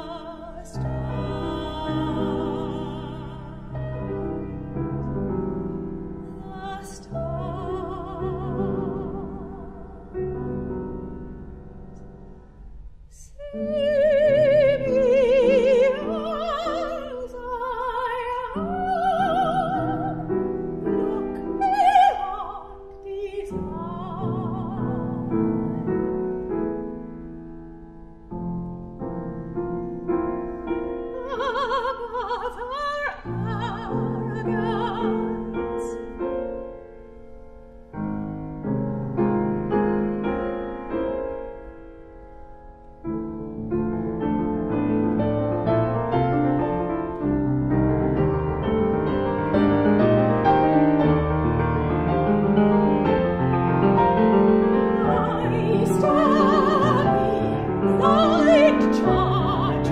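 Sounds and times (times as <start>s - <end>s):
operatic soprano singing: 0.0s - 4.5s, 6.2s - 10.2s, 13.2s - 26.1s, 31.1s - 36.2s, 54.2s - 59.9s
grand piano accompaniment: 0.0s - 59.9s.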